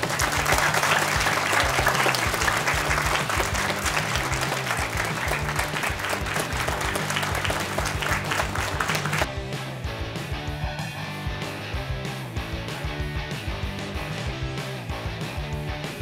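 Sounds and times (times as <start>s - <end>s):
audience applauding: 0.0s - 9.3s
background music: 0.0s - 16.0s.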